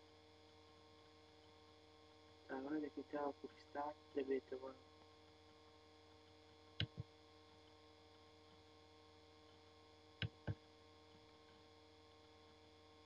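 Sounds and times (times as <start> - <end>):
faint electrical hum: 0.0 - 13.0
computer mouse clicks: 6.8 - 7.1, 10.2 - 11.6.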